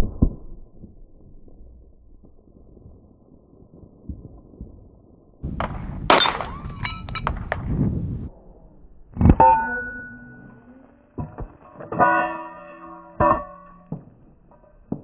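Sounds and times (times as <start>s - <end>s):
pistol shots: 5.5s - 7.7s
debris clinking and rattling: 5.6s - 7.6s
metallic ringing hit: 6.1s - 7.4s.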